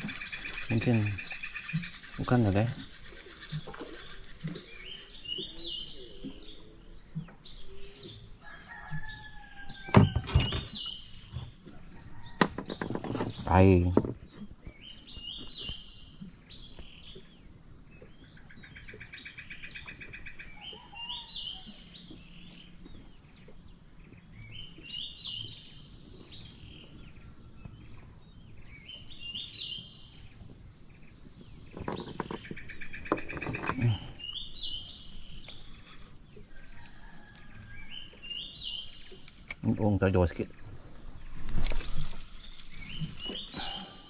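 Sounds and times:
high insect drone: 0.0 - 44.0
close rustle: 40.6 - 44.0
bird call: 42.8 - 44.0.

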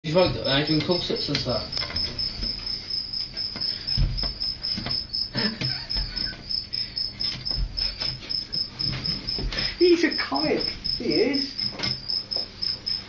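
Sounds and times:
crickets chirping: 0.1 - 13.0
dull knocks: 3.4 - 6.5.

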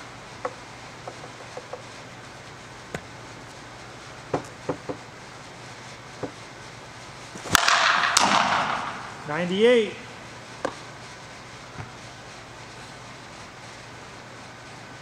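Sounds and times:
low steady hum: 0.0 - 15.0
bat hitting ball: 7.4 - 9.2.

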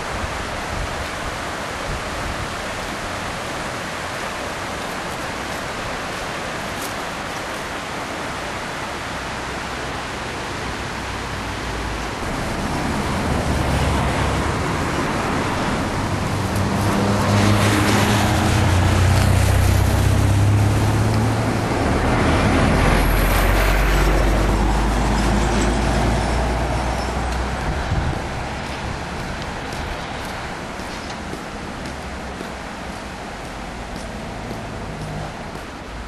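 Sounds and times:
steady rushing hiss: 0.0 - 21.9
vehicles passing: 0.0 - 36.0.

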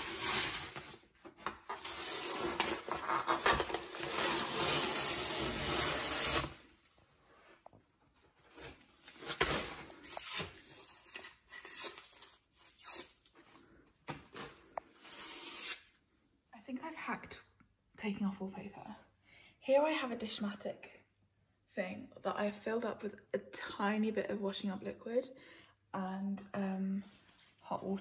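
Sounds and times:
wallpaper ripping: 0.0 - 6.9.

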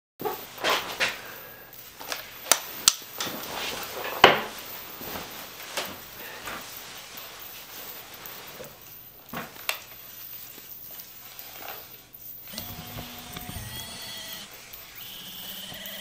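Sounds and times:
clothing rustling: 0.3 - 11.9.

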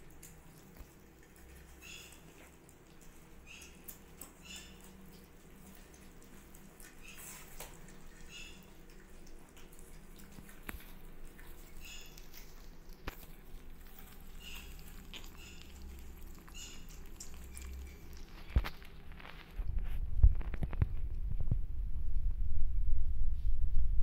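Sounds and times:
kittens eating wet smacking: 0.0 - 21.6
kittens squeaking: 3.4 - 5.0, 8.1 - 8.9, 14.0 - 18.9.

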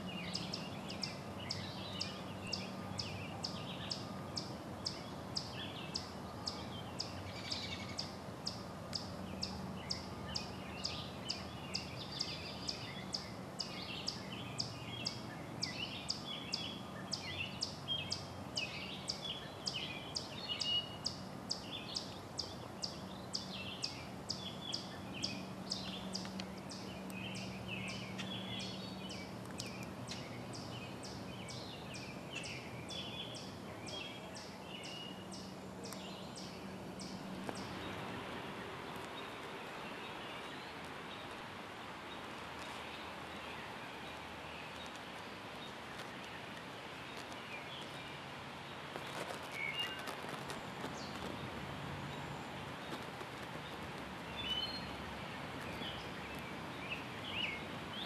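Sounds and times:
bird chirps: 0.1 - 41.4.

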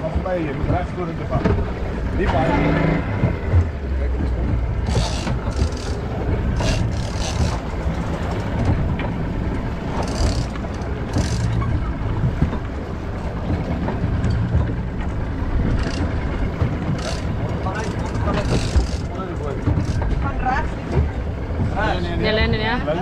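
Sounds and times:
boat engine humming: 0.0 - 23.0.

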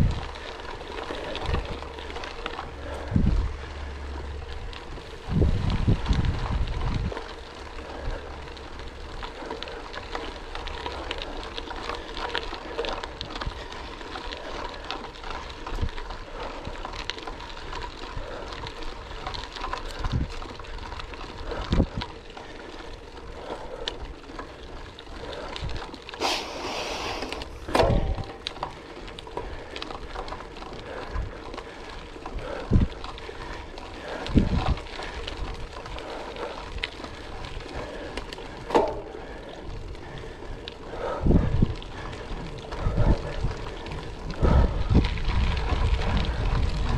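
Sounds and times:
bike rattling: 0.0 - 46.9
bike tyres crunching on gravel: 0.0 - 46.9
harsh rush of noise: 26.2 - 28.2.

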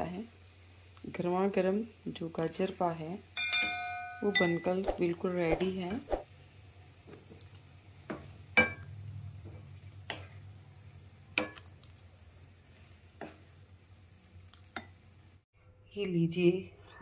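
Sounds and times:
sharp glass clinks: 3.4 - 4.7.

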